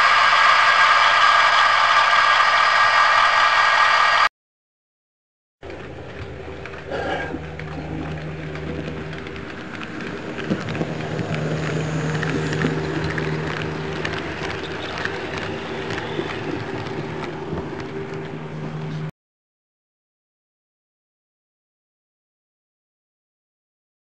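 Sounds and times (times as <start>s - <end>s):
electric motor hum: 0.0s - 4.3s, 5.6s - 19.1s
wheels clicking on rails: 0.0s - 4.3s, 5.6s - 19.1s.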